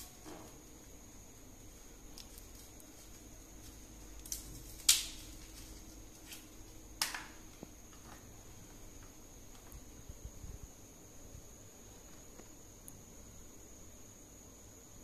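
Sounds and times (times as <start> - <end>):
faint high-pitched whine: 0.0 - 15.0.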